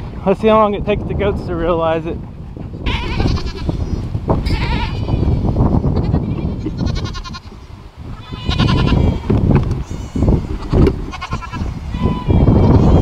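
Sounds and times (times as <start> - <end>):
goats bleating: 2.8 - 3.8, 4.4 - 13.0.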